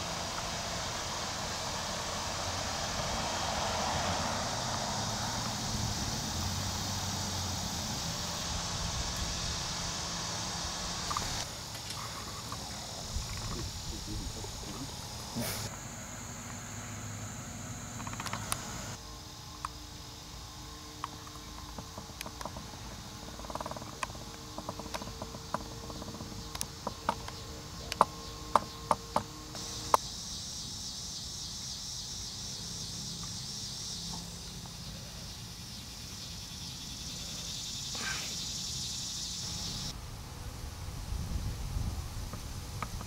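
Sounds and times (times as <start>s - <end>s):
insects chirring: 0.0s - 43.0s
sharp clicks: 17.9s - 19.0s.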